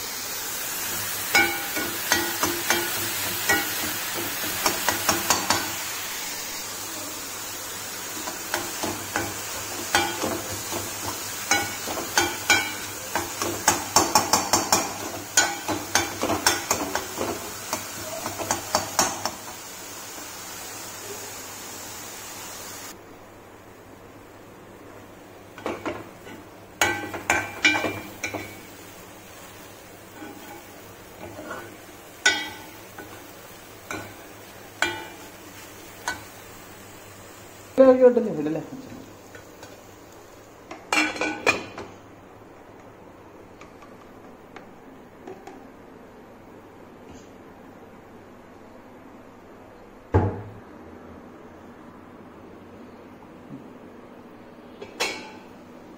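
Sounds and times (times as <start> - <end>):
steady hiss: 0.0 - 49.8
spoon scraping metal pan: 30.2 - 31.7.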